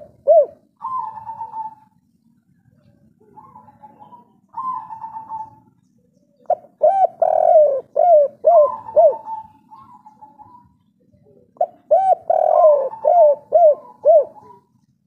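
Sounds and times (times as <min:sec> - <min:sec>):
dove cooing: 0:00.0 - 0:02.0, 0:02.6 - 0:14.8.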